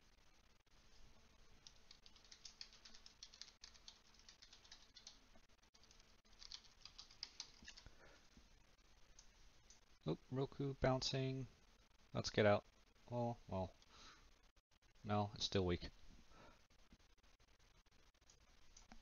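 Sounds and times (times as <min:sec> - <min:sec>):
computer keyboard typing: 0:01.6 - 0:05.2, 0:05.8 - 0:07.9.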